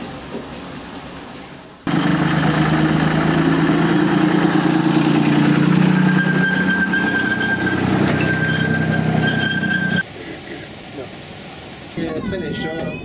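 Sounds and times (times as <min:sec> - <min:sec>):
small locomotive engine running: 0:01.9 - 0:10.0
thin whine: 0:03.8 - 0:10.0.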